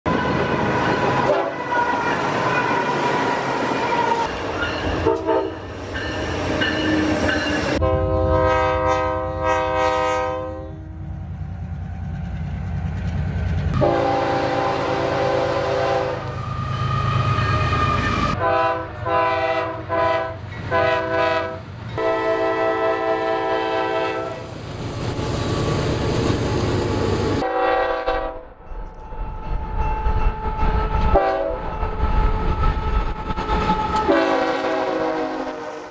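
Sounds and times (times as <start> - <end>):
locomotive air horns: 0.1 - 4.4, 5.0 - 5.7, 7.8 - 11.0, 13.8 - 24.5, 27.4 - 28.5, 30.6 - 32.1, 33.6 - 35.9
engines and rolling train rumble: 0.1 - 35.9.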